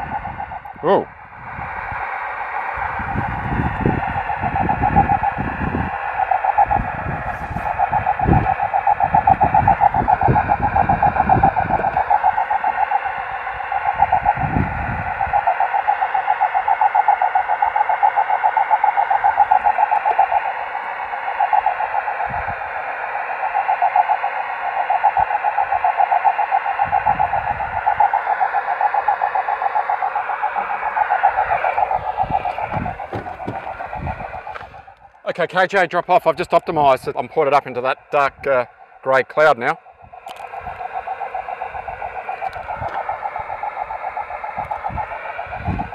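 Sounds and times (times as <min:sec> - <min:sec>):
low rumbles: 0:00.0 - 0:15.5, 0:30.0 - 0:45.9
rough fluttering radio tone: 0:00.0 - 0:45.9.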